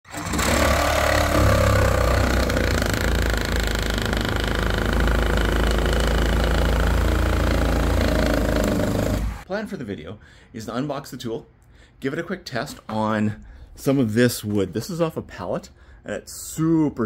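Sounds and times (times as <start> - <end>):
reciprocating saw cutting wood: 0.1 - 9.4.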